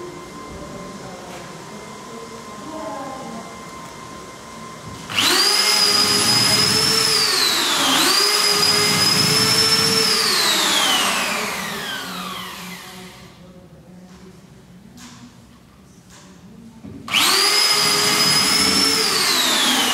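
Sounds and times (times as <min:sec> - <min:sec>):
electric drill whining: 0:04.9 - 0:13.4, 0:17.1 - 0:19.9.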